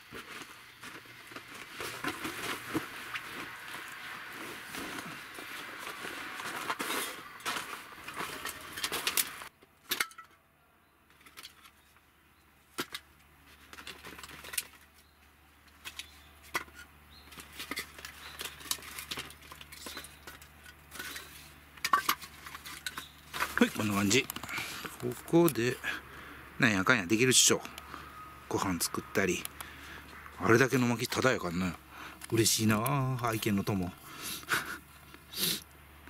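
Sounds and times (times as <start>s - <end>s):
plastic baskets being handled: 0.0s - 9.5s, 12.8s - 15.0s, 15.7s - 25.6s
sleeping bag rustling: 0.0s - 9.5s.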